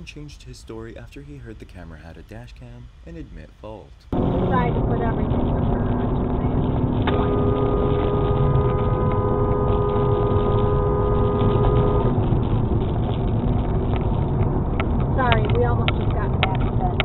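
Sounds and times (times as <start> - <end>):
road and tyre noise: 4.1 - 17.0
car horn two-note: 7.1 - 12.3.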